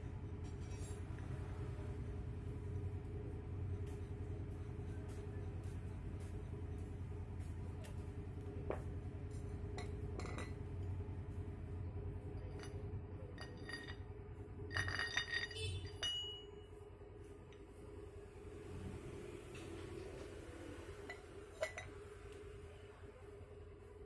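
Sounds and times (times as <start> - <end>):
ringing metal clinks: 12.4 - 14.1, 14.7 - 16.7
metal parts clinking: 13.4 - 14.1, 14.7 - 16.4.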